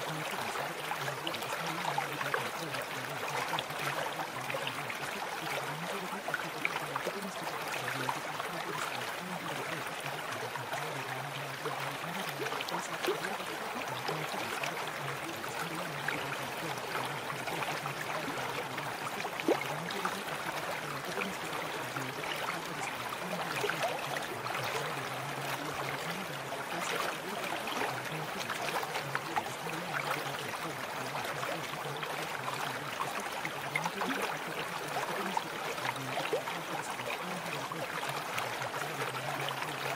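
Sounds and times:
babbling stream: 0:00.0 - 0:39.9.

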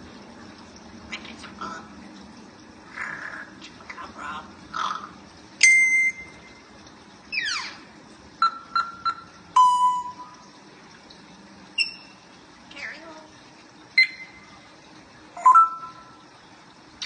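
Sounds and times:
parrot whistling: 0:14.0 - 0:14.4.

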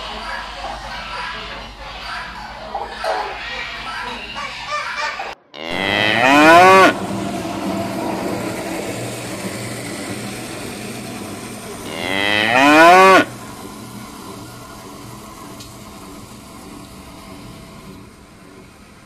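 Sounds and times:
bull mooing: 0:05.5 - 0:07.1, 0:11.8 - 0:13.3.

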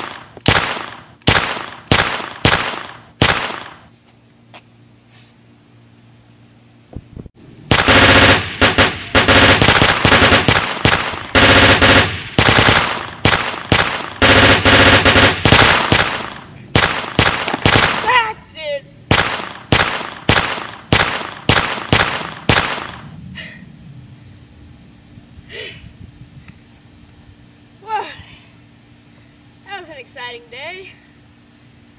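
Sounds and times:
machine-gun fire: 0:00.0 - 0:03.8, 0:07.7 - 0:18.3, 0:19.1 - 0:23.1.

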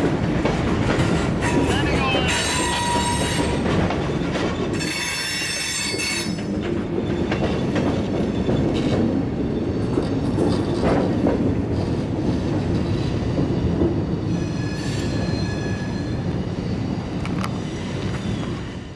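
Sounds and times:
freight train rumbling: 0:00.0 - 0:18.9
high wheel squeal: 0:02.3 - 0:03.6, 0:04.2 - 0:06.4, 0:14.3 - 0:16.3.

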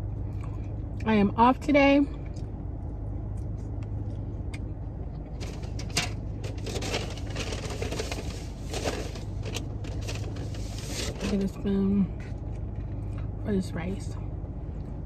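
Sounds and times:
car running low hum: 0:00.0 - 0:15.0
rustling and clicking rummaging: 0:05.4 - 0:11.6.

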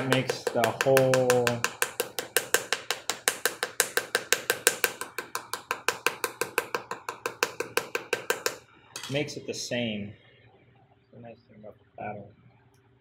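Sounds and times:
wooden paddle tapping clay: 0:00.0 - 0:08.6.

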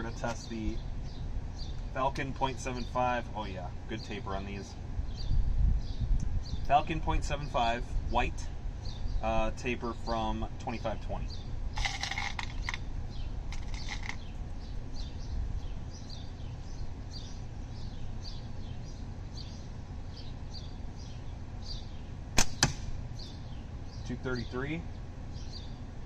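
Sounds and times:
bird chirping: 0:00.0 - 0:06.8, 0:08.8 - 0:09.4, 0:10.6 - 0:25.9
slingshot release crack: 0:22.4 - 0:23.0
steel ball striking target: 0:22.4 - 0:23.0.

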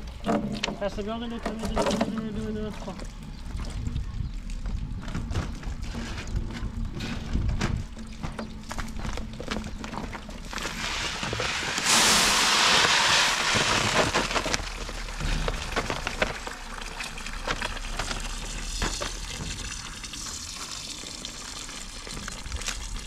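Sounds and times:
hose water running into tub: 0:00.0 - 0:23.0
water splashing and trickling: 0:00.0 - 0:23.0
rice grains pouring: 0:10.6 - 0:19.2.

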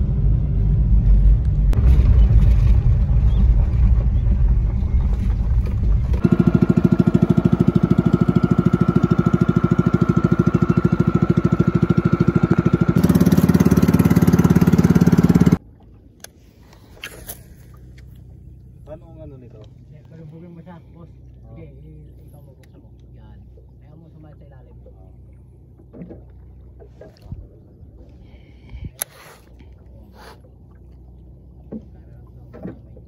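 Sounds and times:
vehicle rumble from inside cab: 0:00.0 - 0:06.3
small boat engine putter: 0:05.0 - 0:33.0.

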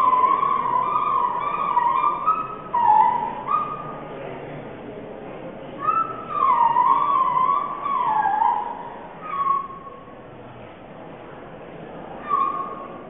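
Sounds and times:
high wavering tone: 0:00.0 - 0:04.2, 0:05.8 - 0:10.1.

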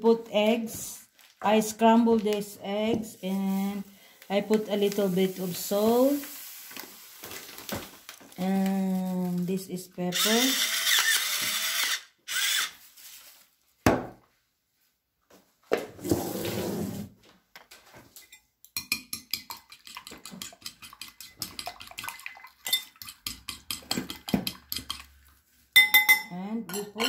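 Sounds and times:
fork beating eggs in bowl: 0:18.8 - 0:25.4.

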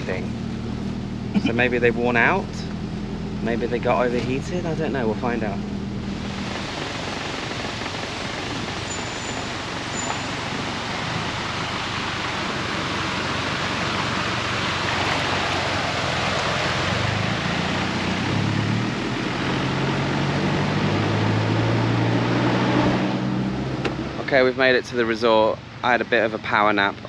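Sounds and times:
truck engine: 0:00.0 - 0:27.0
running water: 0:03.9 - 0:22.1.

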